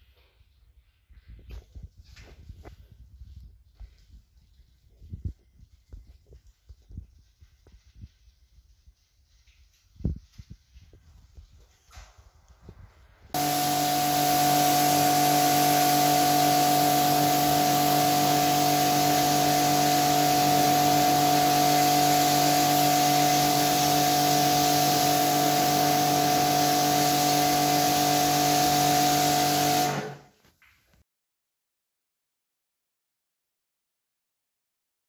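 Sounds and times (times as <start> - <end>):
pressure washer motor hum: 13.3 - 30.3
water spray hiss: 13.4 - 30.2.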